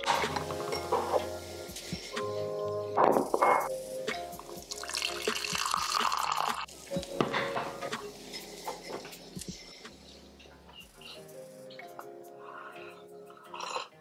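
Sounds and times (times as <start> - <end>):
tea pouring into cup: 4.7 - 6.7.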